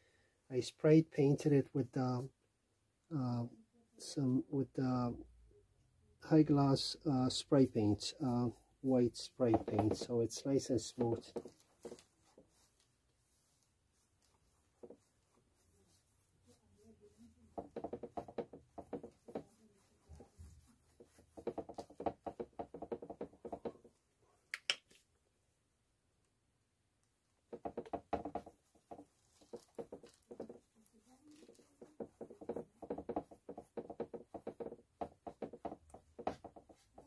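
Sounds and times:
paintbrush scrubbing on canvas: 0:06.3 - 0:24.0, 0:27.5 - 0:37.0.

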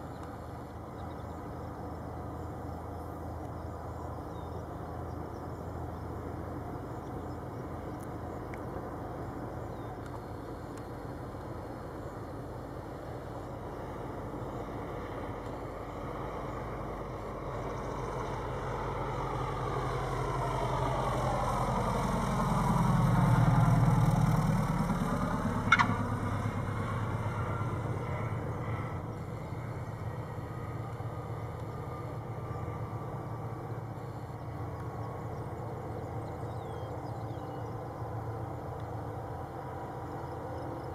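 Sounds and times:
light aircraft engine and propeller: 0:00.0 - 0:40.9.

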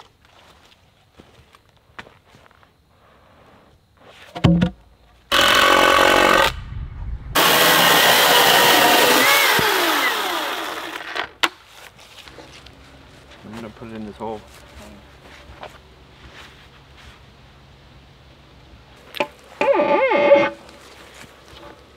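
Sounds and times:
chainsaw cutting wood: 0:05.3 - 0:06.6, 0:07.4 - 0:11.5.

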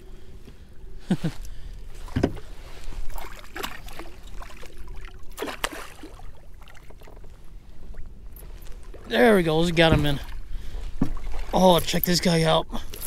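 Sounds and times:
fish splashing at the surface: 0:03.1 - 0:07.1.

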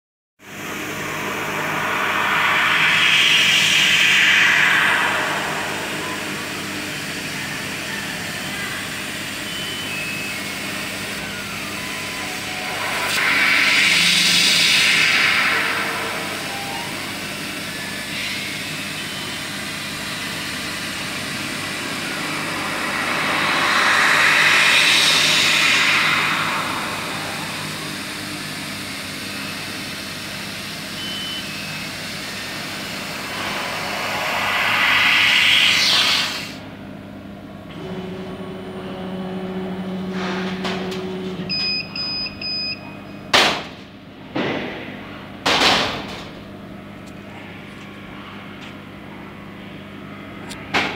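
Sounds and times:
machine hum: 0:00.4 - 0:50.9
assist gas hissing: 0:19.6 - 0:29.0, 0:31.9 - 0:36.6.

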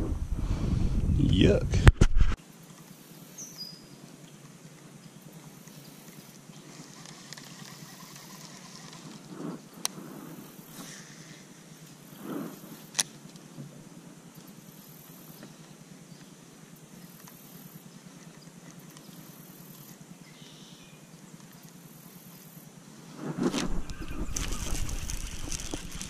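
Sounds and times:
faint outdoor background: 0:00.0 - 0:26.0
fishing reel click: 0:06.8 - 0:09.2.

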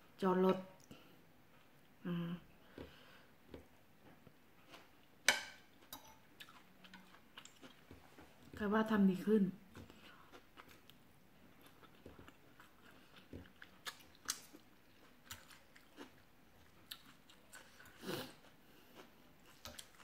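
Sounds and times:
person chewing: 0:02.7 - 0:08.4, 0:09.7 - 0:20.0.

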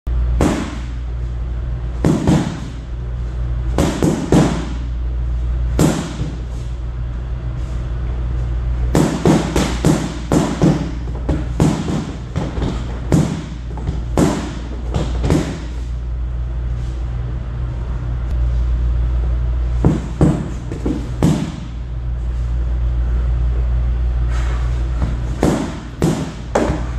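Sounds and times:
low hum: 0:00.1 - 0:26.9
stick hitting punching bag: 0:00.4 - 0:01.0, 0:02.0 - 0:02.9, 0:03.7 - 0:04.9, 0:05.7 - 0:06.6, 0:08.9 - 0:15.8, 0:19.8 - 0:21.8, 0:25.0 - 0:26.9.

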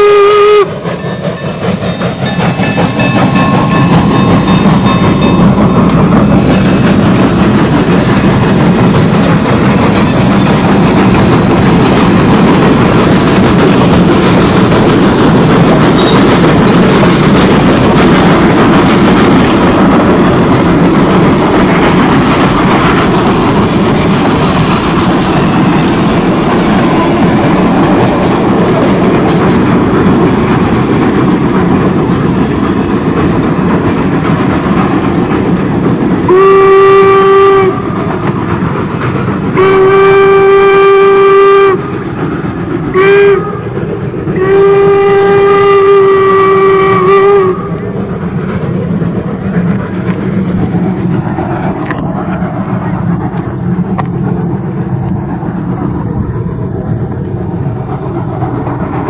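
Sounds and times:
steam whistle blasts: 0:00.0 - 0:00.8, 0:36.3 - 0:38.0, 0:39.5 - 0:41.9, 0:42.9 - 0:43.8, 0:44.4 - 0:47.8
train cars clattering over rails: 0:00.0 - 0:59.0.

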